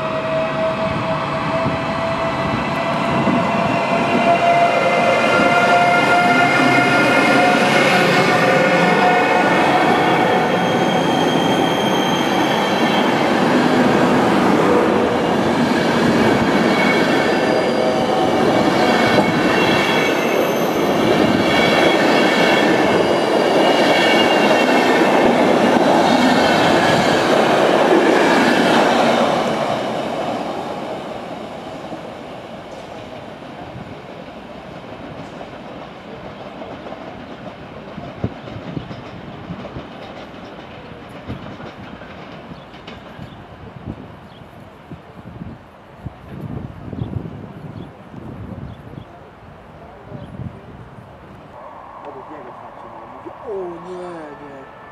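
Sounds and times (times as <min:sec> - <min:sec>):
train wheels clattering on rail: 0:10.6 - 0:44.5
high ringing tones: 0:51.6 - 0:54.9.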